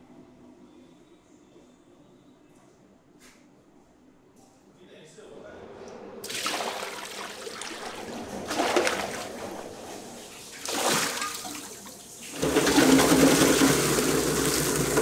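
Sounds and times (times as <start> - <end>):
water splashing in a steel bowl: 6.2 - 15.0.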